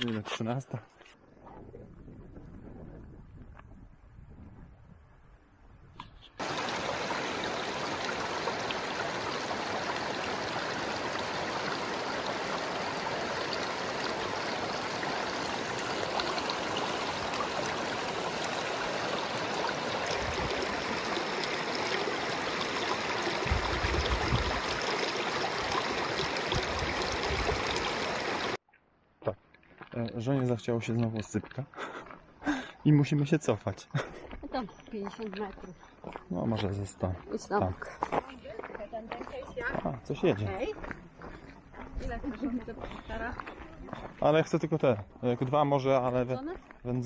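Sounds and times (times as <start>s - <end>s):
mountain stream rushing: 6.4s - 28.6s.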